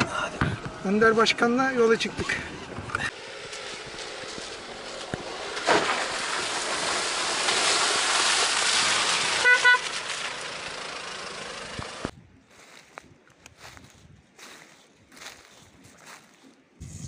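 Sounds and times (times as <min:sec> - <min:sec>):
car horn toots: 0:09.4 - 0:10.0.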